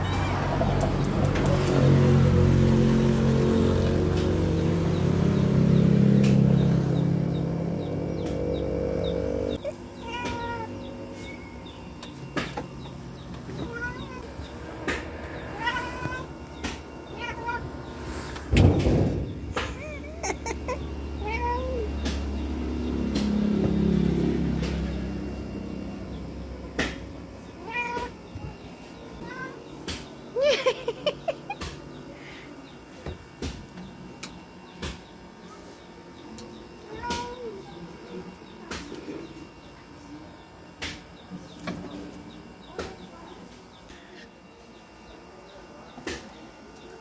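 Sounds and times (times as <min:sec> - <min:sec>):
cats meowing: 0:00.0 - 0:00.8, 0:08.6 - 0:11.4, 0:13.4 - 0:18.4, 0:19.6 - 0:22.3, 0:27.5 - 0:28.6, 0:36.8 - 0:37.6
cat chirping: 0:13.6 - 0:14.4, 0:15.2 - 0:18.4
sharp knocks: 0:18.5 - 0:19.8.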